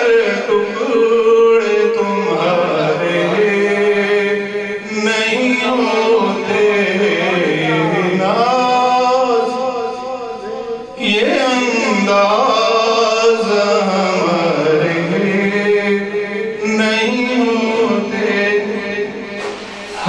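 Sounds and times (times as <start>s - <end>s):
man singing unaccompanied: 0.0s - 20.0s.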